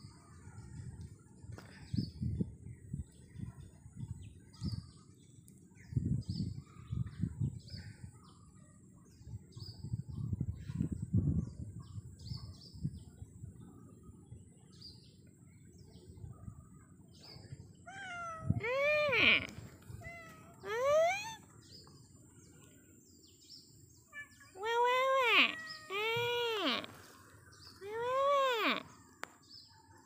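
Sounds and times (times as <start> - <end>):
small birds chirping: 0.0 - 30.0
cat meowing: 17.9 - 21.4, 24.1 - 27.0.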